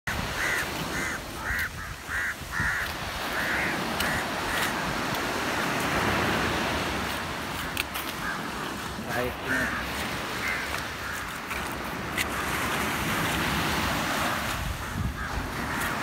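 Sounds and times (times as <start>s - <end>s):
crows cawing: 0.1s - 5.8s, 7.5s - 12.6s, 14.7s - 16.0s.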